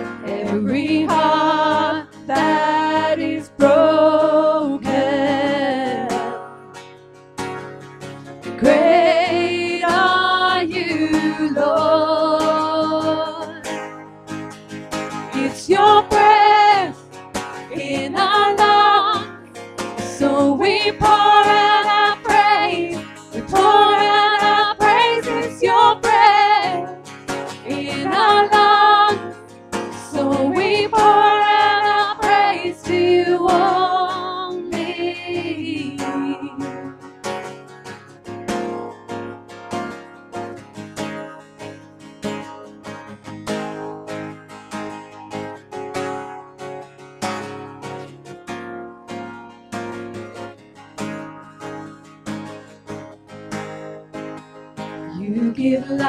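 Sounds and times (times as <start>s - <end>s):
acoustic guitar strumming: 0.0s - 56.0s
women singing: 0.1s - 6.5s, 8.6s - 13.6s, 15.3s - 17.0s, 17.6s - 19.4s, 20.0s - 36.9s, 55.1s - 56.0s.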